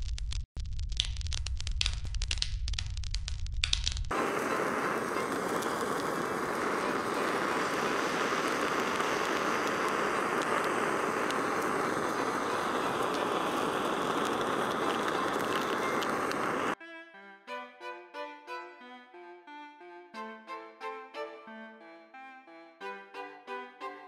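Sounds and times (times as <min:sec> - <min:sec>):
gas torch flame hissing: 0:04.1 - 0:16.8.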